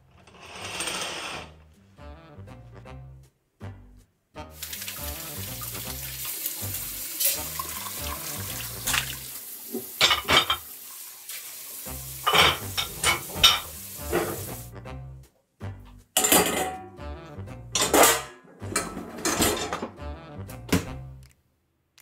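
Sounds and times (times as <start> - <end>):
tap running into sink: 7.2 - 10.7, 12.2 - 14.6
dishes clinking: 10.0 - 10.7, 12.2 - 14.5, 16.2 - 16.8, 17.8 - 20.0.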